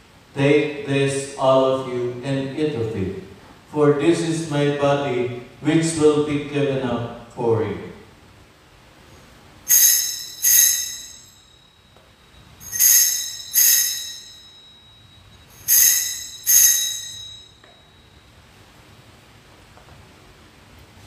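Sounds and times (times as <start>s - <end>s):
small bell ringing: 9.7s - 18.4s.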